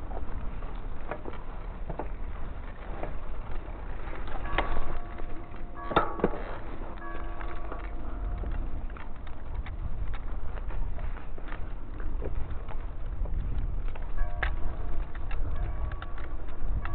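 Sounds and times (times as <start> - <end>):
bike clicks and rattles: 0.0 - 16.9
wind and tyres rumbling: 0.0 - 16.9
bike clattering: 4.0 - 9.2.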